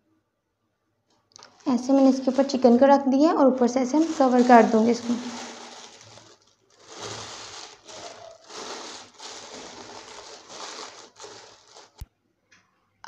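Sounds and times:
paper rustling and crinkling: 1.4 - 3.0, 3.8 - 12.0.

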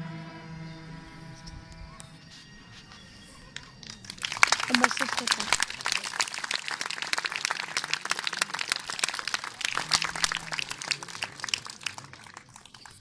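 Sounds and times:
audience applauding: 3.5 - 13.0.

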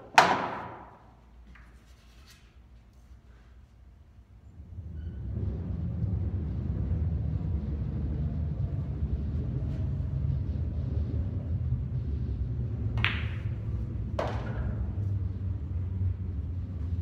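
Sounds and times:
pool cue ball clack: 0.0 - 0.9, 12.9 - 14.9
low rumble: 4.4 - 17.0.

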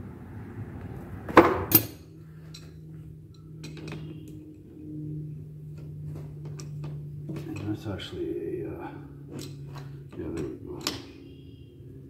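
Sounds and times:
metal tools clicking: 3.3 - 4.5.

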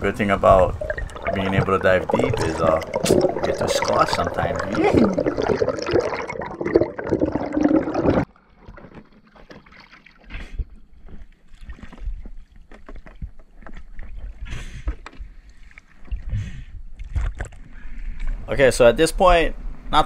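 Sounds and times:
muffled underwater bubbling: 0.4 - 8.3
water lapping around a kayak: 8.2 - 18.5.

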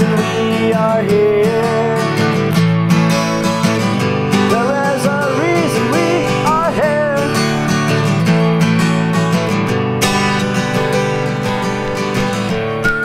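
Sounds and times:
wordless vocal melody: 0.0 - 11.9
acoustic guitar strumming: 0.0 - 13.0.

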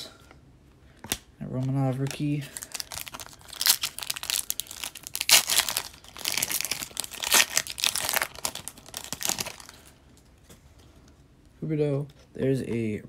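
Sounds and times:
wrapper crinkling: 1.5 - 10.0
foil pack tearing: 2.6 - 9.8.

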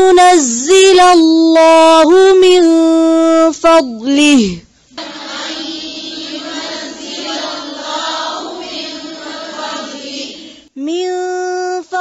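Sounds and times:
woman reciting melodically: 0.0 - 12.0
voices chanting together: 4.9 - 10.8.

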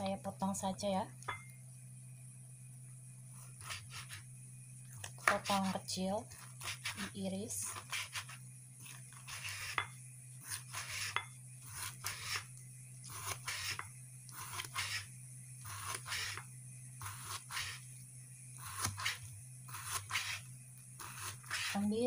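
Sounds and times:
knife slicing on cutting board: 6.4 - 9.8, 10.4 - 12.5, 18.6 - 20.4, 21.0 - 21.8.

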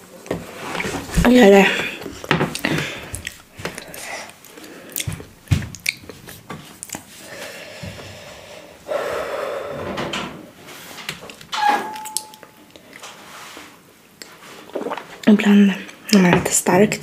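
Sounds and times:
breathy rustling: 0.6 - 5.3.

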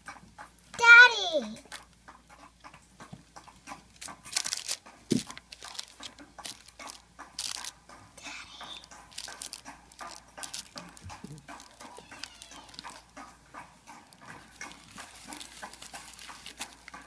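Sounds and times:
plastic toys tapping: 0.0 - 17.0
tissue paper rustling: 4.3 - 7.7, 8.3 - 12.9, 14.7 - 16.9.

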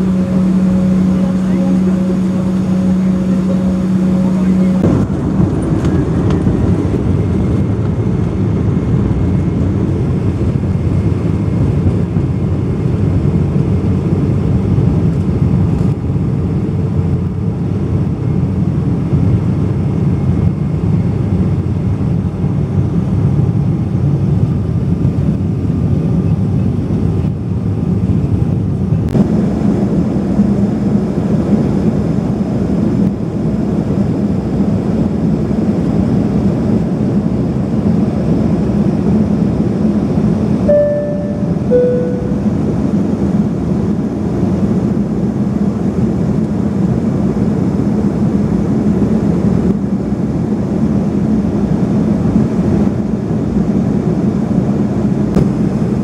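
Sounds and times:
cabin hum: 0.0 - 7.7
jet engines rumbling in cabin: 0.0 - 56.0.

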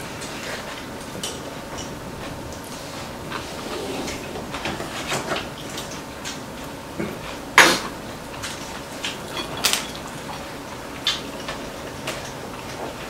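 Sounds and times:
cutlery clinking on ceramic bowls: 9.2 - 10.5.

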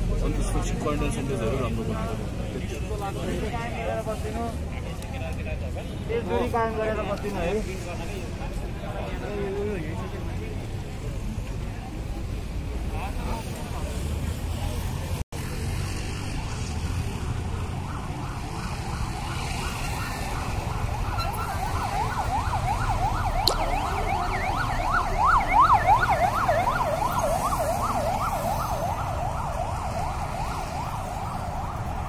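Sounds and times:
low street rumble: 0.0 - 32.0
siren yelping: 17.3 - 32.0.

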